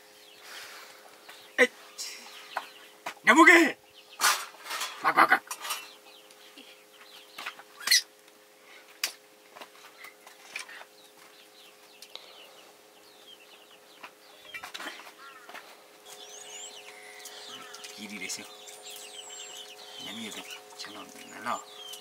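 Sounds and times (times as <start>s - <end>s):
faint high bird chirps: 13.2s - 22.0s.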